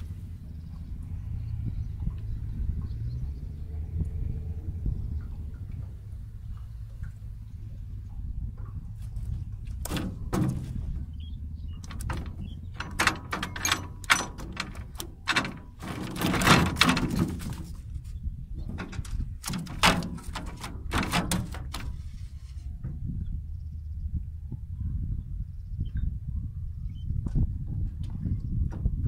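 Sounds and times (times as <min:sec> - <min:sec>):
fish trap knocking against hull: 0:09.8 - 0:11.1, 0:18.7 - 0:22.0.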